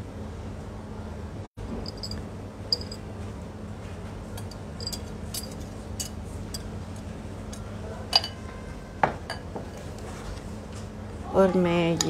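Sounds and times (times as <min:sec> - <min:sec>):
steady low hum: 0:00.0 - 0:12.0
utensil clinking on glass bowl: 0:01.9 - 0:03.0, 0:04.4 - 0:06.7, 0:08.1 - 0:08.4.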